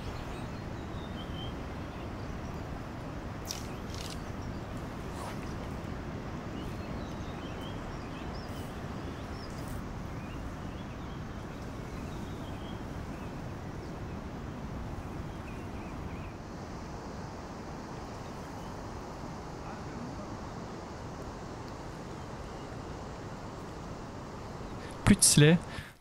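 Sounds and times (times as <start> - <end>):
small birds chirping: 0.0 - 16.5
river flowing: 0.0 - 26.0.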